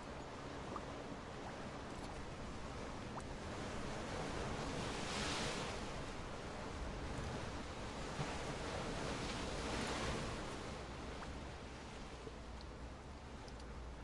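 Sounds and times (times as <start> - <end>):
surf washing over rocks: 3.5 - 11.0.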